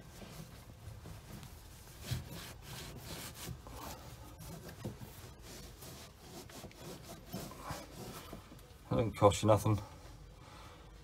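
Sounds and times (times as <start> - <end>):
cloth rag rubbing metal fitting: 0.0 - 8.6.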